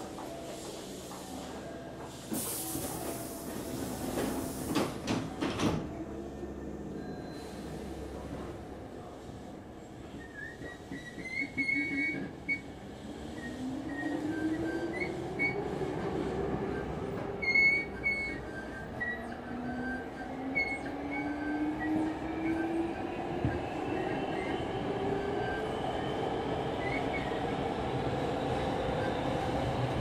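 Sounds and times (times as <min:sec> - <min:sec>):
high wheel squeals: 0:10.2 - 0:12.7, 0:16.7 - 0:22.7.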